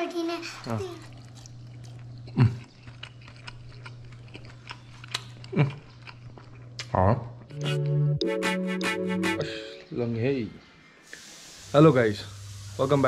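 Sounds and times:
close-up chewing: 0.6 - 7.5.

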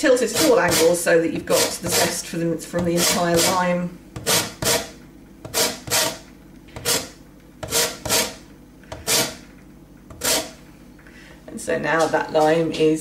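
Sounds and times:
grater rasping: 0.1 - 3.6, 4.2 - 6.2, 6.8 - 9.4, 10.1 - 10.6.

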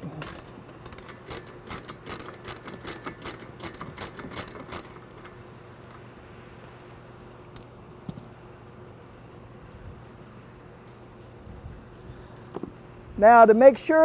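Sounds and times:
ratchet wrench clicking: 0.0 - 5.4.

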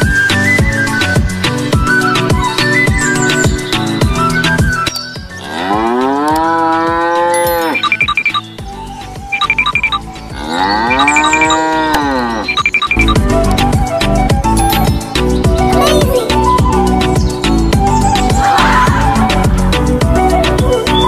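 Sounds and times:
background music: 0.0 - 21.0
cow mooing: 5.4 - 7.8, 10.3 - 12.6.

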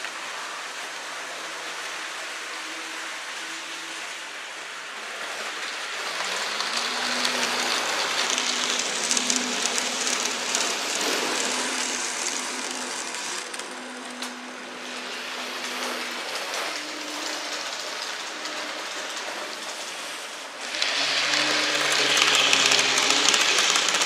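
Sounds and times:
model train wheels rattling: 5.0 - 24.0.

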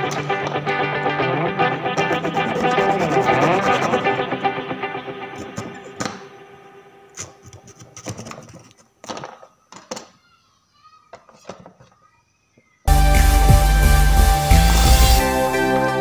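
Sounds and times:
background music: 0.0 - 7.2, 12.9 - 16.0.

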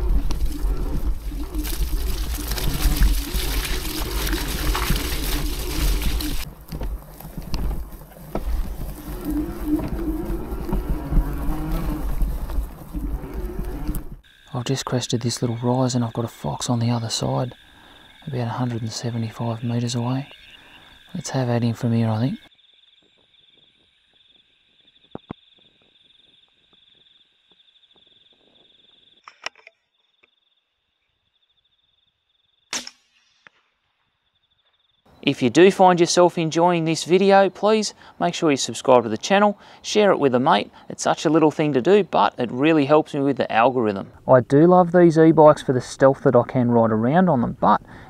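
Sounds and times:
bike tyre noise on grass: 0.0 - 29.2
insects calling in pulsing trill: 0.0 - 45.7.

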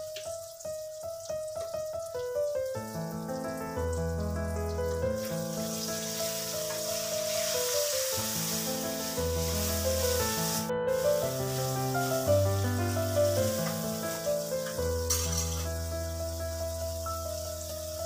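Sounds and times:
instrumental music with held notes: 0.0 - 18.0
food sizzling in oil: 4.3 - 18.0.

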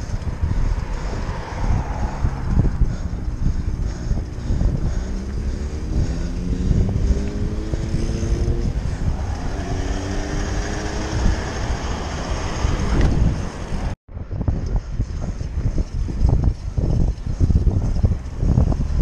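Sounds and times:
vehicle engine accelerating: 0.0 - 14.0
wind rumbling on microphone: 0.0 - 19.0.

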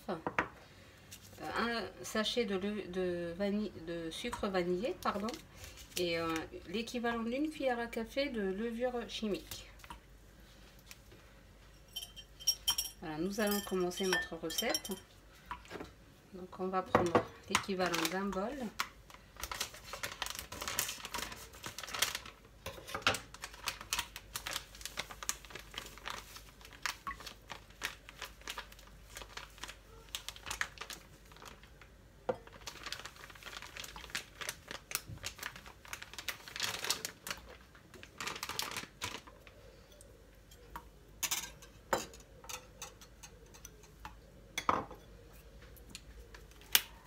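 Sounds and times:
flour bag rustling: 17.6 - 39.8.

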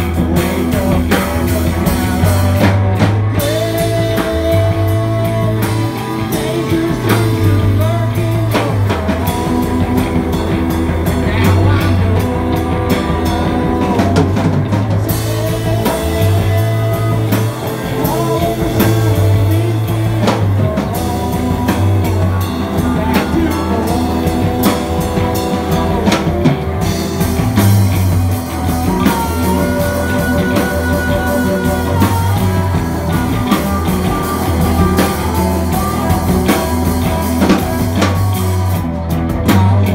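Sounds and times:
drum kit beat: 0.0 - 39.9
electric bass: 0.0 - 39.9
electric guitar: 0.0 - 39.9.

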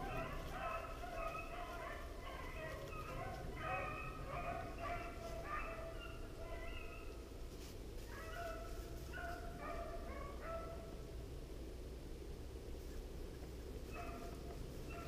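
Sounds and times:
dogs baying: 0.0 - 7.1, 13.9 - 15.0.

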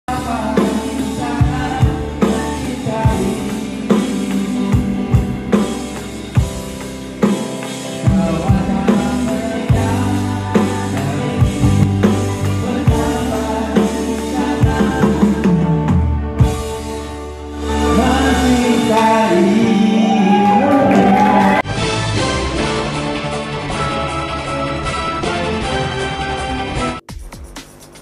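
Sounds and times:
electronic drum beat: 27.0 - 28.0.

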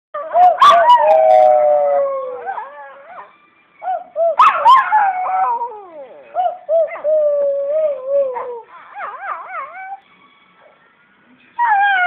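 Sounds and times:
dog yipping: 0.2 - 1.1, 2.5 - 5.1, 7.9 - 10.0
dog howling: 0.2 - 10.0.

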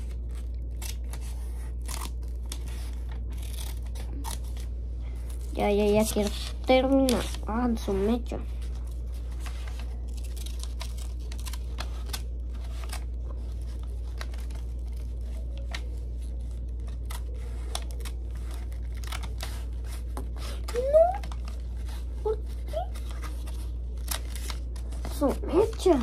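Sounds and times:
scissors snipping paper: 0.0 - 4.7, 5.3 - 8.1, 9.4 - 26.0
steady low hum: 0.0 - 26.0.

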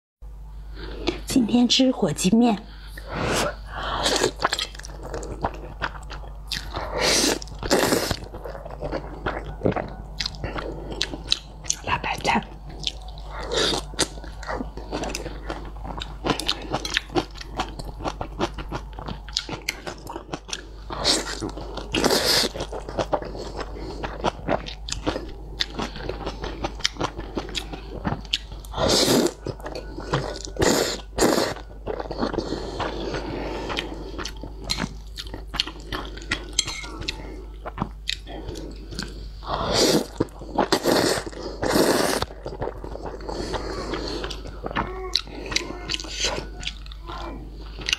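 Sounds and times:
wet chewing and smacking: 4.1 - 39.4, 40.1 - 47.9
loud noodle slurps: 40.7 - 42.3.

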